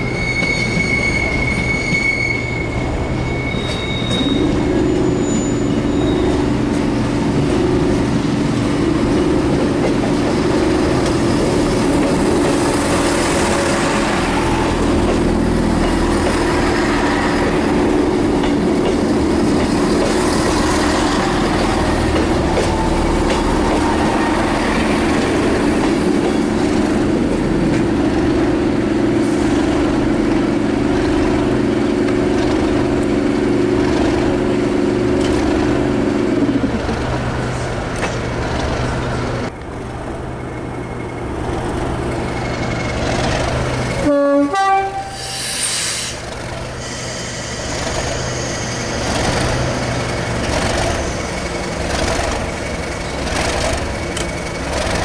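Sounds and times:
diesel train engines droning: 0.0s - 55.0s
diesel locomotive idling: 4.7s - 55.0s
train horn: 44.0s - 45.4s.

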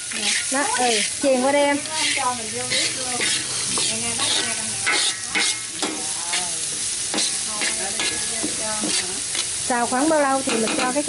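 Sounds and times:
metal spatula scraping metal pan: 0.0s - 6.5s, 7.1s - 9.5s
carrots sizzling in hot oil: 0.0s - 11.0s.

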